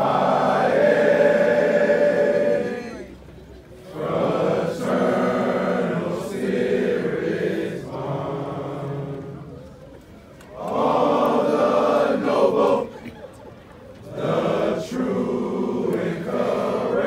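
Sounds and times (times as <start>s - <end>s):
men singing together: 4.0s - 9.1s, 14.2s - 17.0s.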